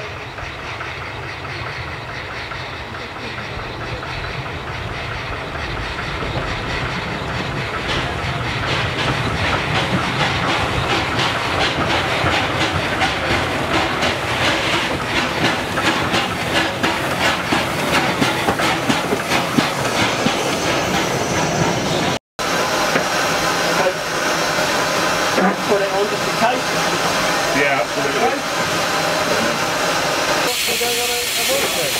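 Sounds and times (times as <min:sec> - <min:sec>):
steam hissing: 0:00.0 - 0:31.9
steam locomotive chuffing: 0:00.0 - 0:31.9.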